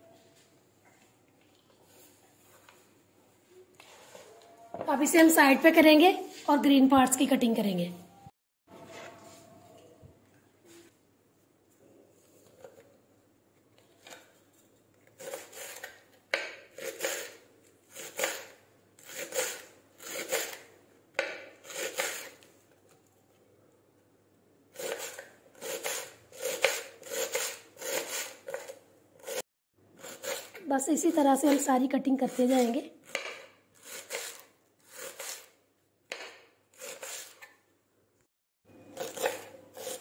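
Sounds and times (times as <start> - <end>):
knife chopping on cutting board: 39.0 - 40.0.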